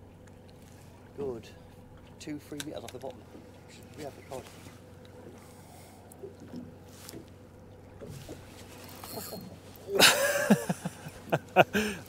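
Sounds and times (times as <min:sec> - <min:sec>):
calm water around a boat: 0:00.0 - 0:12.0.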